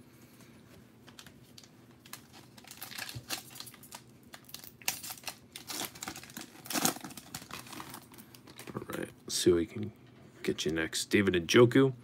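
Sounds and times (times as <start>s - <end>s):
foil wrapper crinkling: 1.2s - 8.8s.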